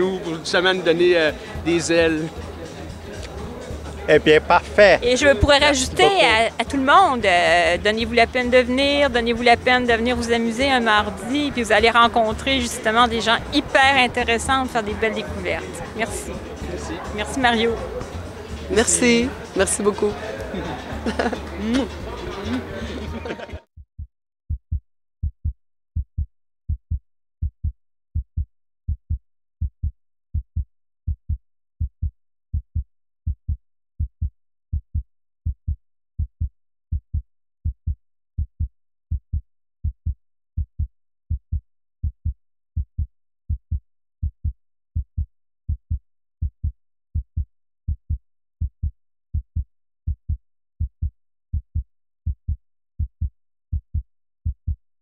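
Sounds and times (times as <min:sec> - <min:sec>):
heartbeat thumps: 0:20.9 - 0:22.1, 0:26.0 - 0:32.8, 0:34.0 - 0:35.6, 0:36.4 - 0:38.7, 0:39.8 - 0:46.7, 0:47.4 - 0:54.8.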